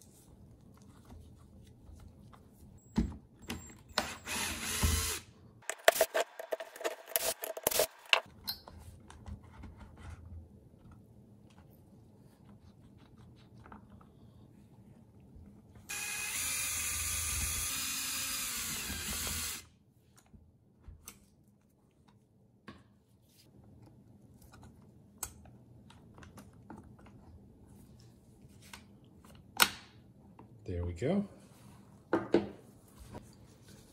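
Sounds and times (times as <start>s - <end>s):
driver tool whirring: 3.9s - 8.3s, 15.9s - 19.6s.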